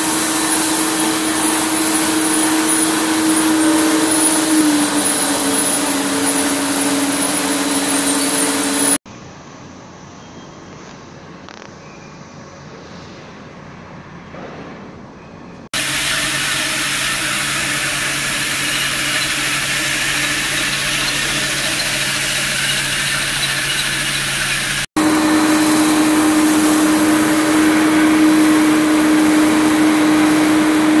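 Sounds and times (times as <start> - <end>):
industrial machinery hissing: 0.0 - 9.0, 15.8 - 31.0
mid-pitched machine drone: 15.8 - 31.0.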